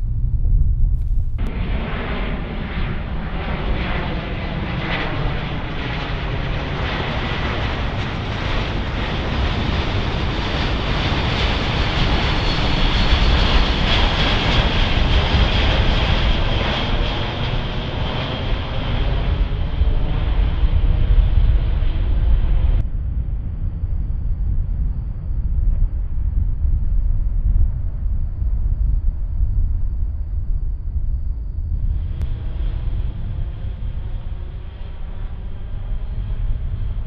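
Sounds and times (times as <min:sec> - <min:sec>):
jet plane flying overhead: 0:00.0 - 0:37.0.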